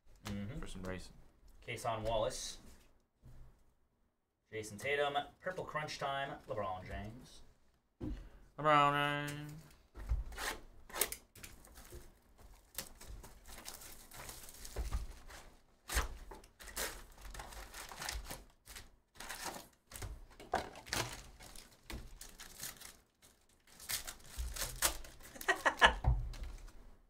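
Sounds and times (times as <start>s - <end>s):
foil pack crinkling and tearing: 11.0s - 25.8s.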